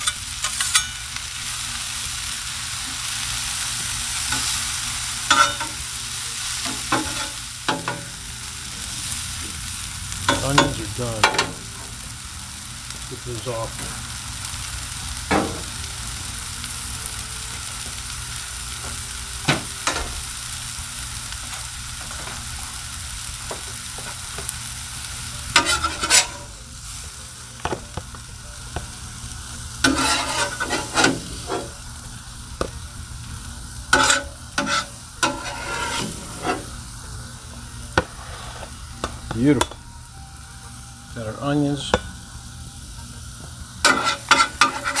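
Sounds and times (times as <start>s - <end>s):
metal spatula scraping griddle: 0.0s - 1.2s, 4.1s - 5.9s, 6.6s - 8.2s, 25.4s - 26.6s, 29.8s - 31.8s, 33.9s - 36.8s, 38.0s - 38.8s, 43.8s - 45.0s
onions sizzling on a griddle: 0.0s - 45.0s.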